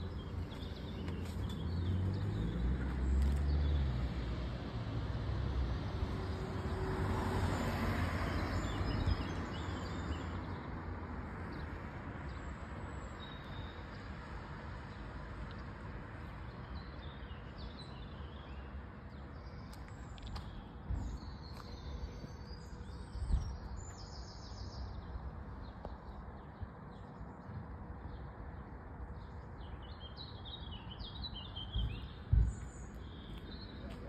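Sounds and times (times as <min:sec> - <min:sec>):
car passing: 0:00.0 - 0:12.8.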